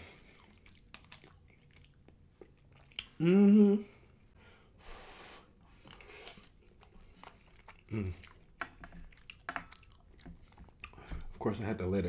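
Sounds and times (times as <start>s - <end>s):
person eating: 0.0s - 4.2s, 5.0s - 11.2s
wet mouth clicks: 0.4s - 3.8s
breathy puff of air: 4.4s - 5.5s.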